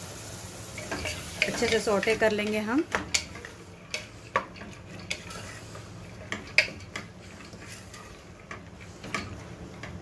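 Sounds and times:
wooden spatula stirring in pot: 0.7 - 10.0
knocks and scrapes against pot: 2.9 - 10.0.

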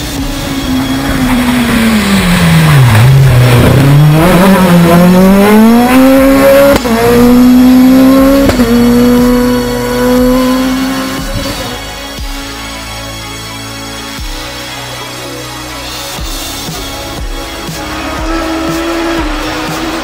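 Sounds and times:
rally car engine revving: 0.0 - 12.2, 16.7 - 20.0.

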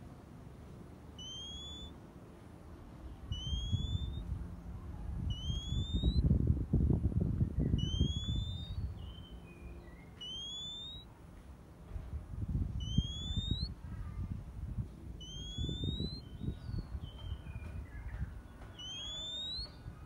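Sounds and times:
low rumbling noise: 0.0 - 20.0
bird calling: 1.1 - 2.0, 3.2 - 4.3, 5.2 - 6.2, 7.7 - 11.1, 12.8 - 13.7, 15.2 - 20.0.

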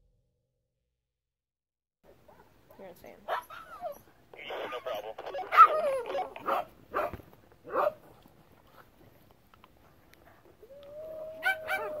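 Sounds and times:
small dog yipping: 3.3 - 4.1, 4.7 - 8.0, 11.1 - 12.0
dog whining: 4.8 - 6.6, 10.6 - 12.0.

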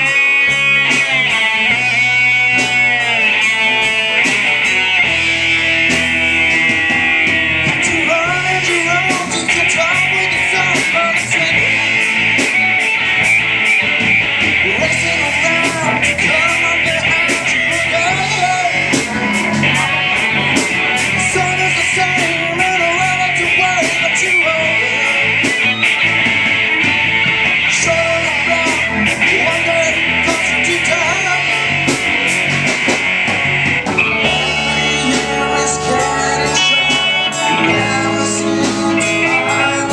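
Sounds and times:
bass guitar: 0.0 - 39.9
drums with cymbal hits: 0.0 - 39.9
electric guitars: 0.0 - 39.9
keyboard: 0.0 - 39.9.

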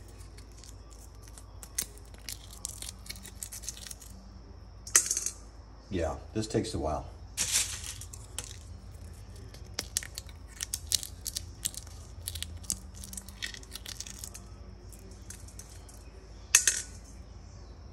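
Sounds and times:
coffee bean shells crackling: 0.0 - 4.3, 7.4 - 17.2.

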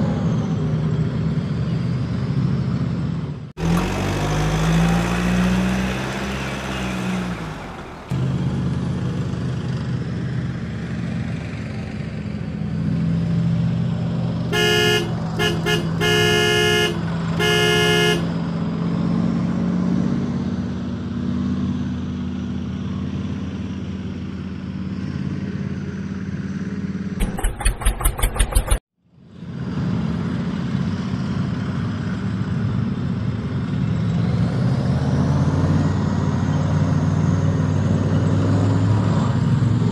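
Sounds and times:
vehicle engine running: 3.6 - 18.6, 22.1 - 28.8
horn short toots: 14.5 - 18.4
rapid pulses: 27.2 - 28.8.

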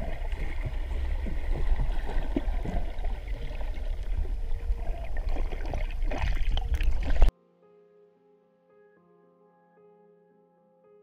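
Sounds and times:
underwater rumble of moving water: 0.0 - 7.3.

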